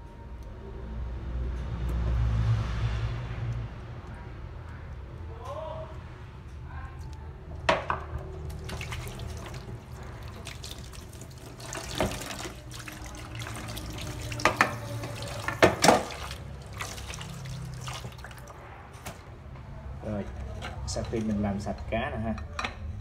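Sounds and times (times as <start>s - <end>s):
splashes and knocks: 7.7s - 18.6s
water sloshing in a basin: 8.2s - 19.2s.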